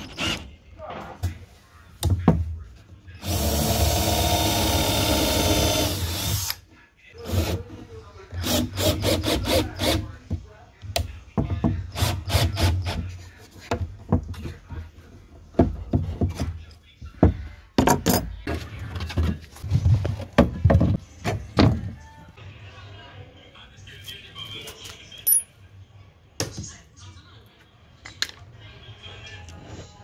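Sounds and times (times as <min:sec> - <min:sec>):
cordless drill running: 0:03.2 - 0:06.6.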